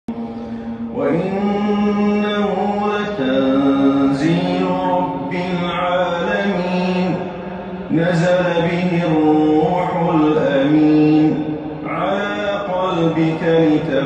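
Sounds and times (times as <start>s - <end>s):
man reciting melodically: 0.1s - 14.0s.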